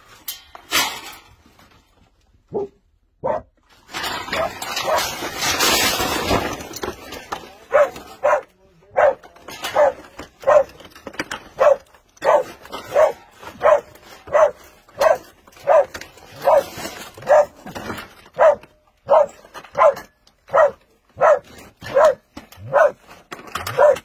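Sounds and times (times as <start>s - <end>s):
dog barking: 2.5s - 3.5s, 7.7s - 10.8s, 11.6s - 17.6s, 18.4s - 23.0s, 23.7s - 24.0s
rustling: 3.6s - 24.0s.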